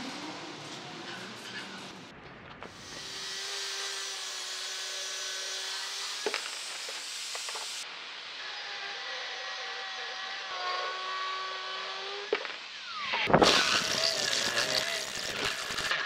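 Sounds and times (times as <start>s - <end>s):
angle grinder cutting steel: 2.7s - 7.8s, 8.6s - 16.0s
drill bit biting into steel: 13.4s - 16.0s.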